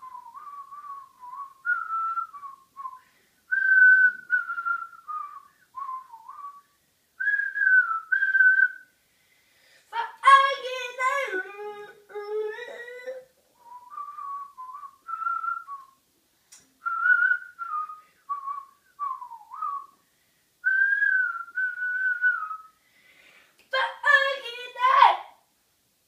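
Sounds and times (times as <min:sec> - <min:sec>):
child whistling a tune: 0:00.0 - 0:08.8, 0:13.6 - 0:16.0, 0:16.8 - 0:20.0, 0:20.6 - 0:22.8
child singing: 0:09.9 - 0:13.3, 0:23.7 - 0:25.3.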